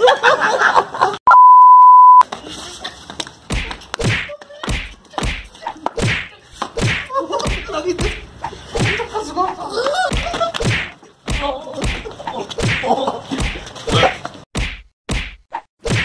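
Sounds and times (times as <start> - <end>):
steady test tone beep: 1.3 - 2.2
blows whacking and thudding: 3.4 - 9.1, 10.0 - 16.0.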